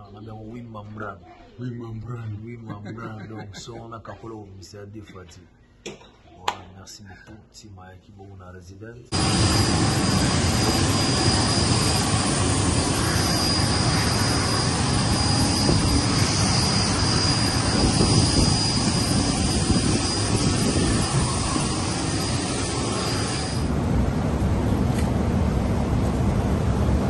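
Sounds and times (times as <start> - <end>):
high-pitched turbine whine: 9.1 - 27.0
jet turbine roar: 9.1 - 27.0.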